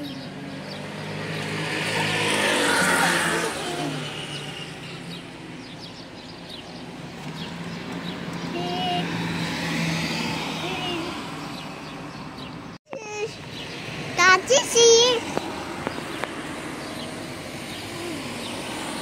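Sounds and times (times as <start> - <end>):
car passing by: 0.6 - 5.2, 8.9 - 12.3.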